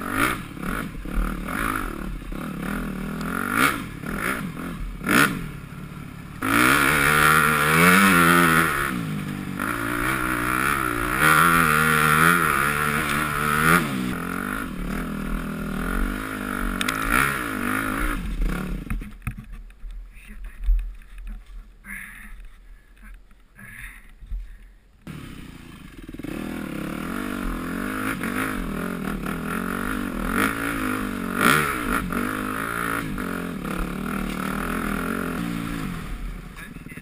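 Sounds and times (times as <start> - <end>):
dirt bike engine revving: 0.0 - 19.2, 25.0 - 37.0.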